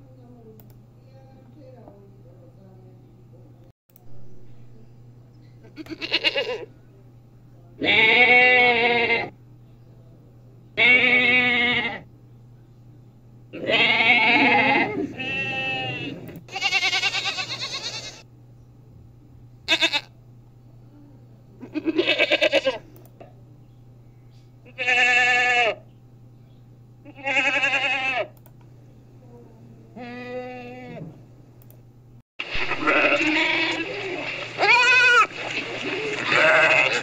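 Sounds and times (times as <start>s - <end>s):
goats bleating: 5.6s - 6.7s, 7.8s - 9.3s, 10.8s - 12.0s, 13.6s - 18.2s, 19.7s - 20.1s, 21.6s - 22.8s, 24.7s - 25.8s, 27.0s - 28.4s, 30.0s - 31.0s, 32.5s - 37.0s.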